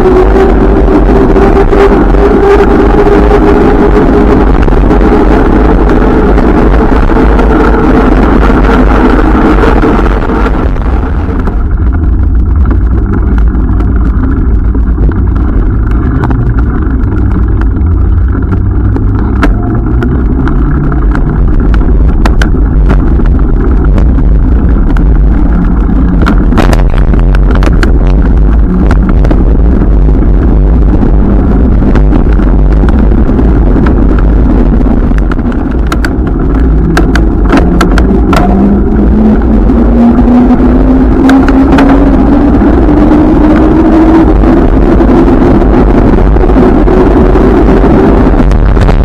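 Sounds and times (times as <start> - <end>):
wind buffeting microphone: 0.0 - 49.0.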